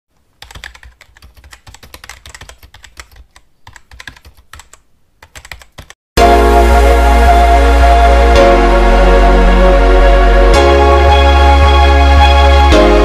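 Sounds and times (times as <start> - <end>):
loud music: 6.2 - 13.0.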